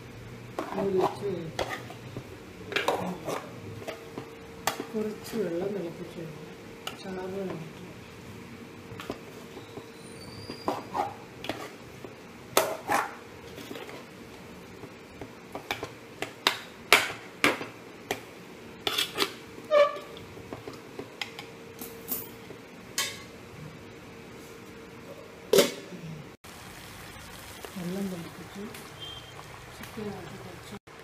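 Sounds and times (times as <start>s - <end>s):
spoon scraping metal pot: 0.6s - 2.1s.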